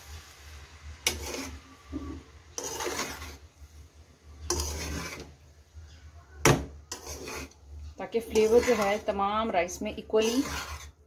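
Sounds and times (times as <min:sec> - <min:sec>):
spatula scraping pan bottom: 0:01.0 - 0:03.5, 0:04.4 - 0:05.4, 0:06.5 - 0:11.0.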